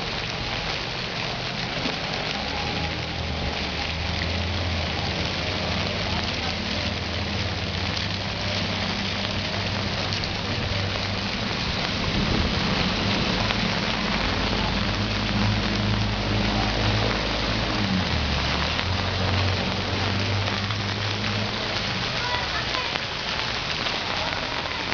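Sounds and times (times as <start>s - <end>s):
heavy rain pouring: 0.0s - 24.9s.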